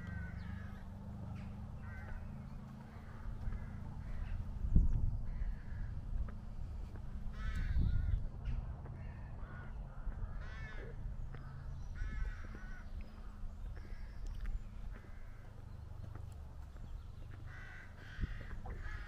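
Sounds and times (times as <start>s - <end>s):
crow cawing: 0.0s - 4.4s, 5.3s - 6.0s, 7.3s - 8.2s, 9.0s - 13.0s, 14.9s - 15.6s, 17.4s - 19.0s
steady low rumble: 0.0s - 19.0s.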